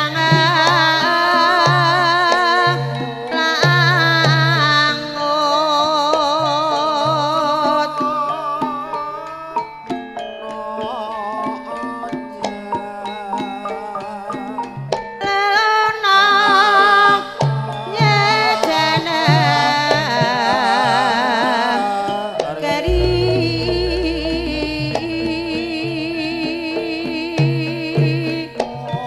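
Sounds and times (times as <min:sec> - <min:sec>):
person singing with vibrato: 0:17.1 - 0:28.6
deep low note: 0:22.9 - 0:26.6
hand drum beating: 0:22.9 - 0:26.7.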